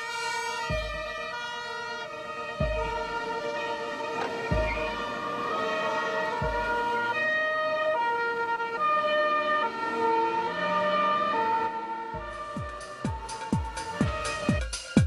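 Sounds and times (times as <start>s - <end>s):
police car two-tone siren: 0.0s - 15.0s
music with a beat: 0.1s - 3.5s, 4.2s - 5.2s, 12.2s - 15.0s.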